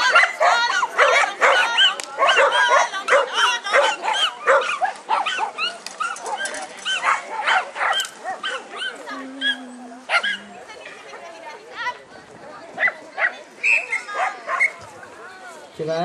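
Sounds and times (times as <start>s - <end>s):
dog yapping: 0.0s - 10.5s.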